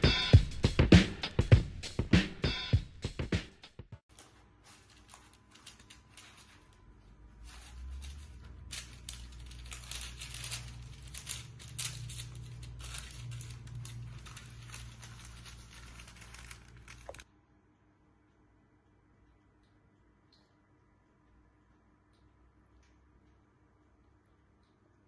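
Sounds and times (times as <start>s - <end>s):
music with drums: 0.0s - 4.0s
baking paper crinkling: 4.1s - 17.3s.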